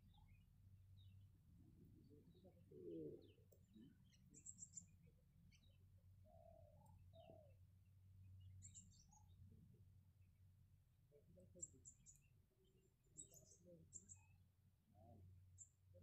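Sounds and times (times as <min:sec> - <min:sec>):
bird calls: 0:00.0 - 0:07.6.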